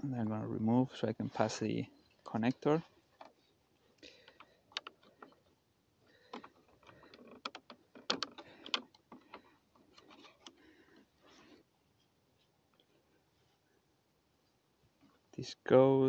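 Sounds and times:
cable rustling: 1.3s - 13.6s
plastic clicks: 4.0s - 5.5s, 6.1s - 10.6s.

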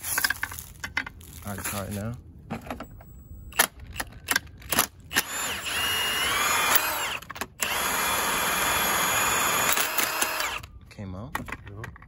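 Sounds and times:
power tool whining: 5.1s - 10.7s.

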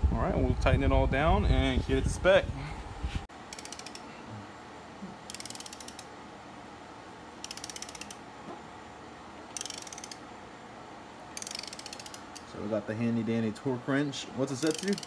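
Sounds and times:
ratchet wrench clicking: 3.5s - 4.1s, 5.3s - 6.1s, 7.4s - 8.2s, 9.6s - 10.2s, 11.4s - 12.5s, 14.6s - 15.0s.

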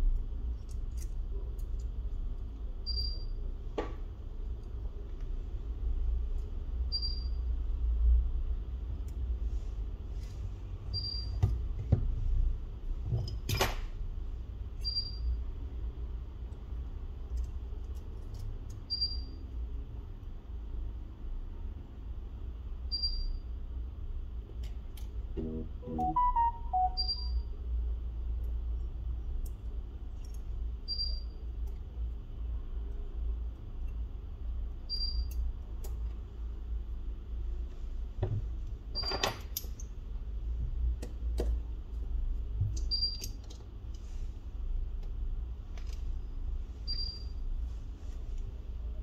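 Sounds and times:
steady low hum: 23.8s - 38.9s
short high beep: 25.4s - 27.4s.

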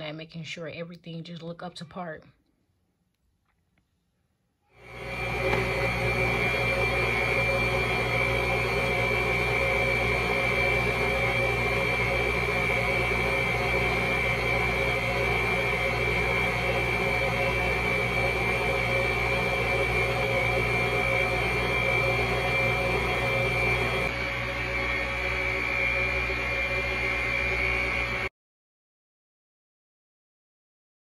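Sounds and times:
electric machine hum with high whine: 4.8s - 28.3s.

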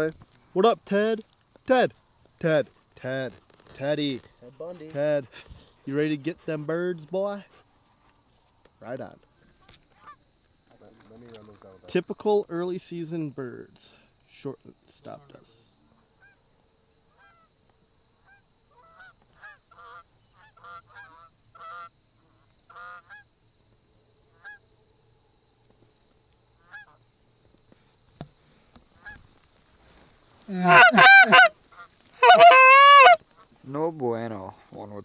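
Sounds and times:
geese honking in flight: 18.3s - 21.9s, 29.0s - 29.2s, 30.5s - 33.5s.

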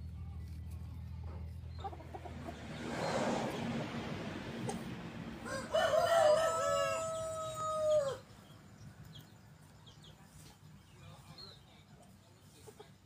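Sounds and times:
rooster crowing: 5.3s - 8.3s.

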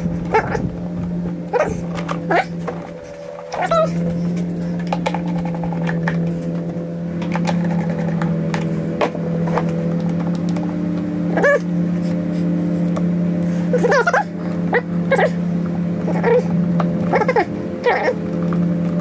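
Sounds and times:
dog whimpering: 0.0s - 0.7s, 1.5s - 4.4s, 11.3s - 11.7s, 13.7s - 15.4s, 17.1s - 18.2s
low hum: 0.0s - 19.0s.

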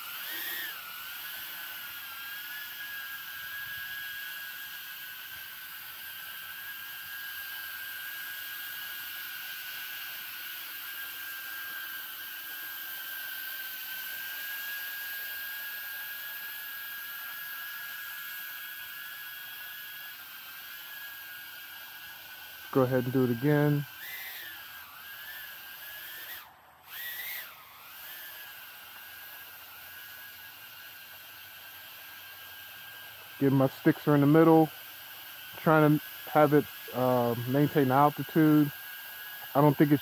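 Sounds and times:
drone propellers whining: 0.0s - 7.8s, 20.6s - 31.4s.

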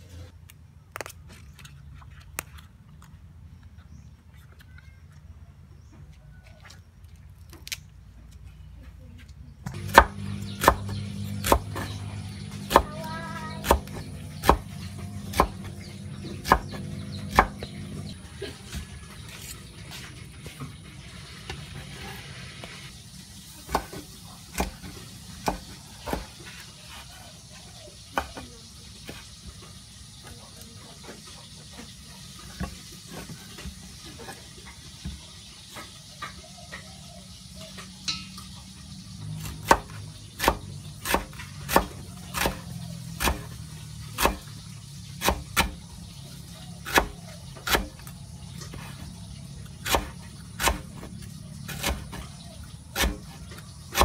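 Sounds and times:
knife chopping on wooden board: 9.6s - 18.1s, 23.6s - 26.6s, 39.4s - 44.6s, 45.2s - 45.8s, 46.8s - 48.1s, 49.8s - 54.0s.

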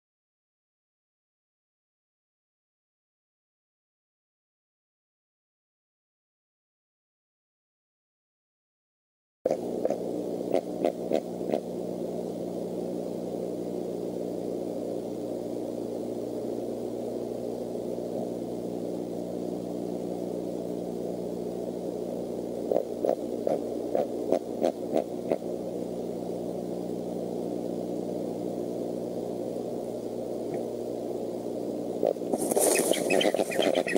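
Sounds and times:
electrical hum: 9.5s - 33.9s.

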